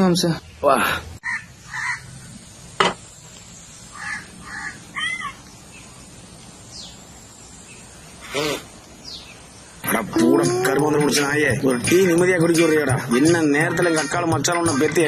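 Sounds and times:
crow cawing: 1.2 - 2.1, 3.9 - 5.4
sharp knock: 2.8 - 3.0.

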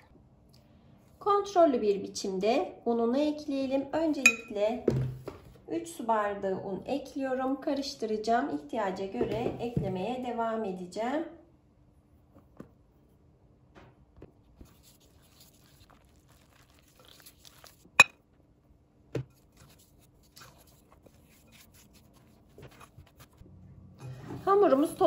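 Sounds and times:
sharp clink against glass bowl: 4.3 - 4.5
stirring and scraping in glass bowl: 14.6 - 18.1, 19.4 - 23.4.

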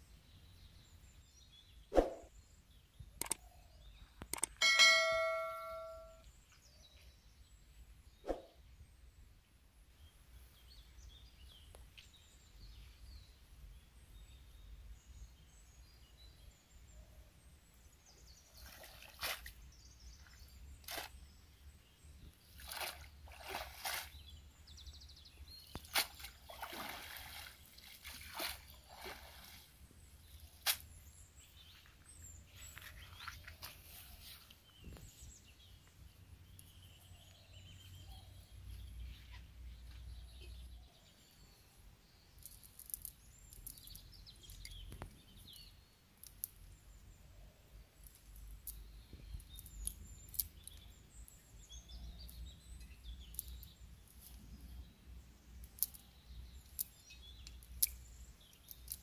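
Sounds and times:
birds chirping: 0.0 - 9.2, 10.0 - 59.0
water sloshing and splashing: 22.6 - 24.2, 25.8 - 29.8.

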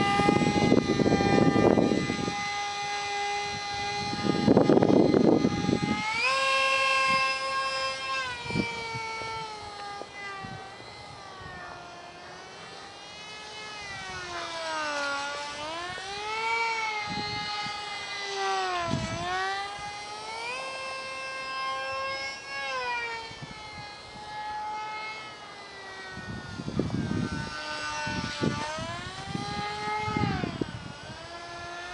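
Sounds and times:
small electric motor whining: 0.0 - 31.9.

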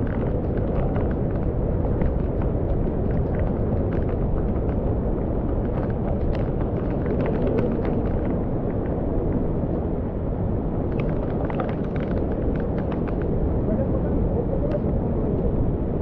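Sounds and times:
rain ticks and splashes: 0.0 - 9.9, 10.8 - 13.5.

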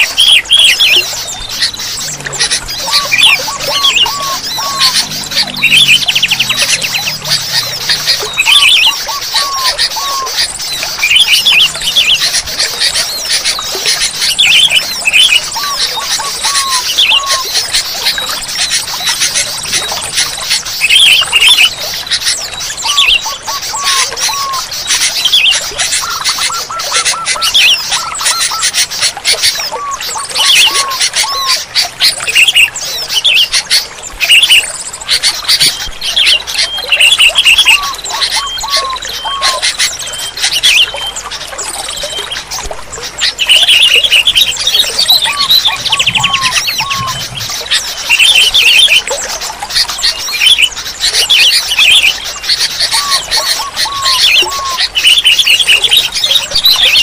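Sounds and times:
bulbuls calling bubbly phrases: 0.0 - 57.0
dense chatter of high chirps: 0.0 - 57.0.

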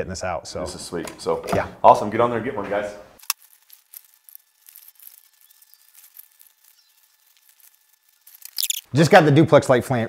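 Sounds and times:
webbing and buckles rustling: 3.2 - 8.9.

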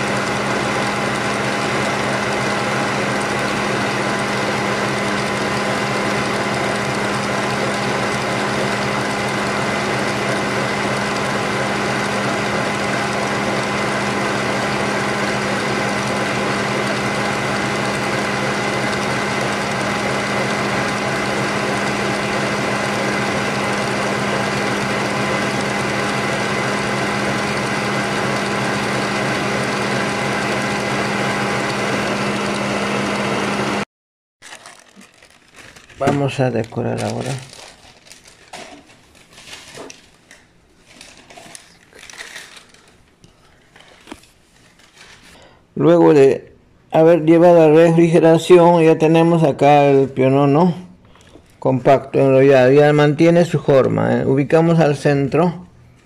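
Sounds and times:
stand mixer motor whining: 0.0 - 38.8.

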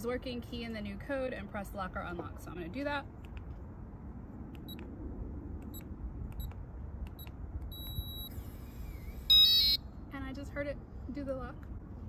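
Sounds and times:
keypad beeps: 5.7 - 8.3, 9.3 - 9.8.

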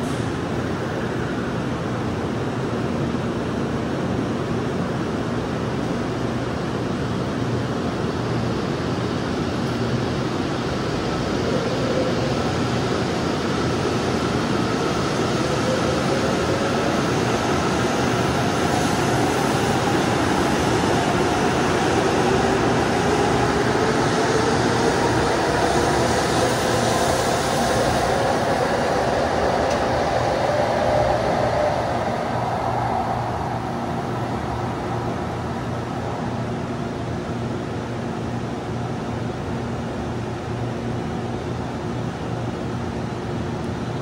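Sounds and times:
train wheel and running noise: 0.0 - 44.0.

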